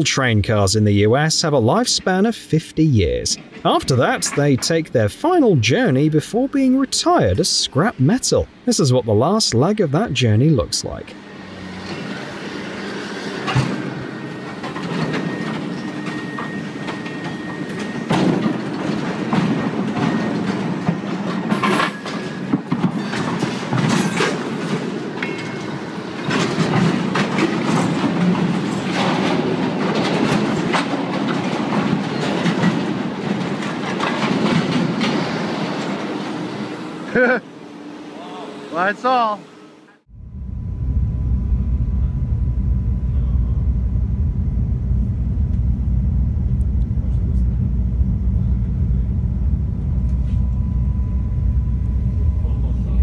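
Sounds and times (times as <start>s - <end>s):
train wheels rumbling and clanking: 0.0s - 37.4s.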